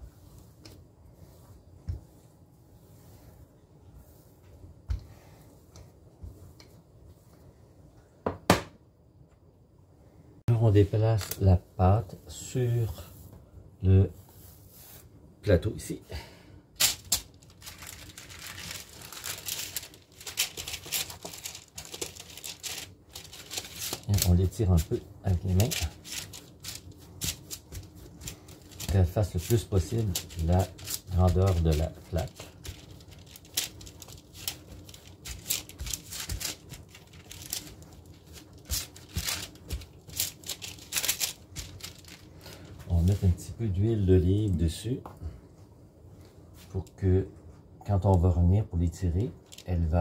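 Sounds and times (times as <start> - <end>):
baking paper crinkling: 16.8 - 43.6, 49.4 - 49.9.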